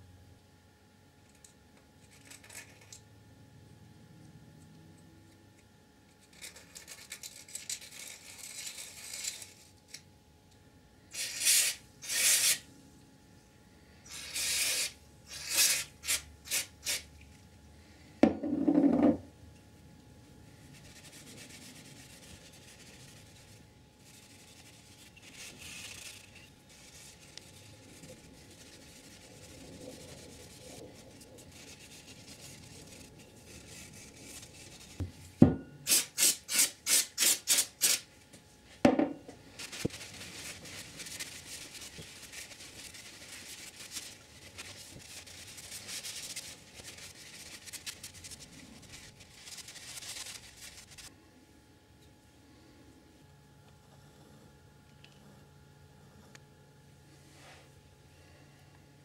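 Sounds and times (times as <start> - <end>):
scrubbing and rubbing strokes: 20.5 - 35.0, 39.5 - 51.1.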